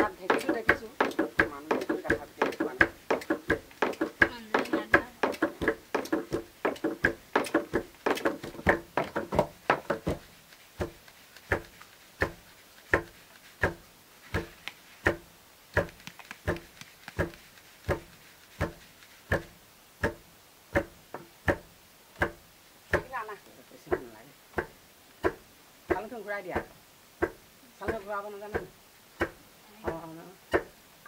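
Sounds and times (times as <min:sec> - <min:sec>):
plastic bowl knocking metal bowl: 0:00.0 - 0:10.2.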